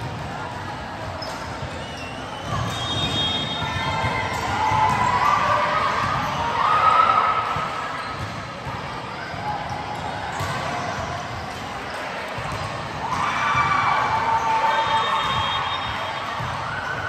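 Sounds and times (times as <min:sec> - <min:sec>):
volleyball hits: 0:01.4 - 0:17.0.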